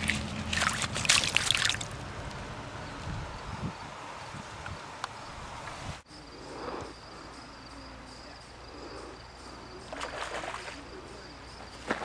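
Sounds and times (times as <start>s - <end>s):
insect chirping: 4.8s - 12.0s.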